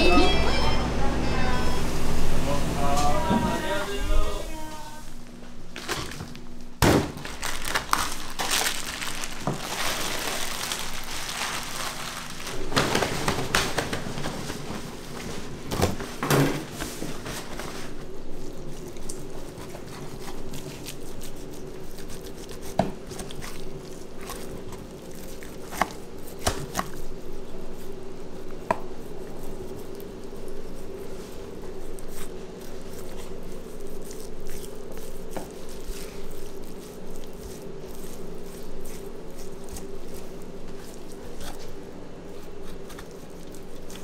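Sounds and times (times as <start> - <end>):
steady hum: 0.0 - 44.0
crinkling and rustling: 5.7 - 27.1.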